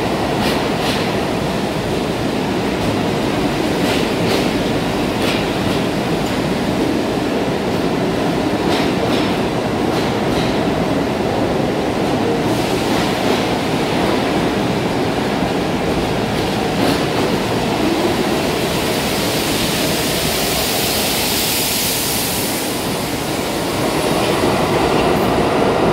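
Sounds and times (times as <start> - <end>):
subway train wheels on rails: 0.0 - 25.9
train hiss: 12.3 - 14.0, 17.6 - 25.7.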